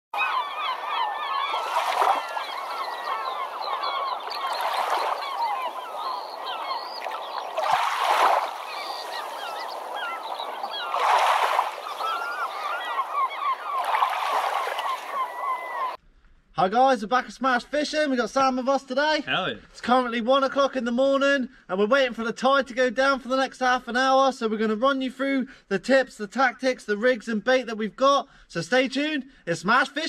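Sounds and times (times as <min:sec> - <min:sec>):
flock of birds chattering: 0:00.2 - 0:16.0
surging wash: 0:01.5 - 0:15.2.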